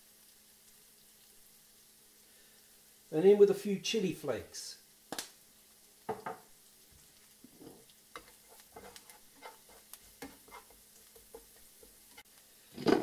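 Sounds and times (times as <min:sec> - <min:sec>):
butter and oil sizzling: 0:00.0 - 0:13.0
spatula tapping and scraping pan: 0:06.1 - 0:06.5, 0:07.5 - 0:13.0.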